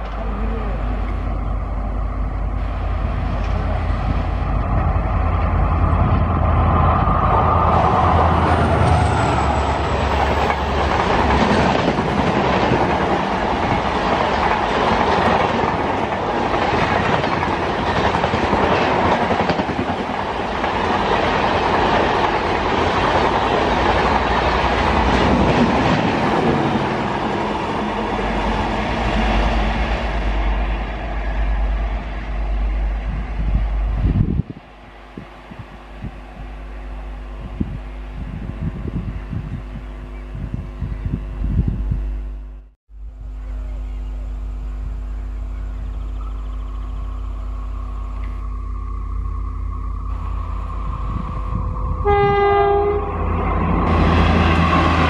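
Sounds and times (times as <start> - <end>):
deep locomotive engine hum: 0.0 - 55.0
train wheels clickety-clack: 8.0 - 27.5.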